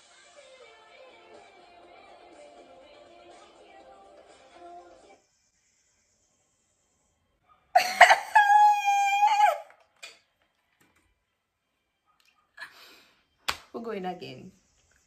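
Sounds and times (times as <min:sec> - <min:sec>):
woman laughing loudly: 0:07.8 - 0:09.7.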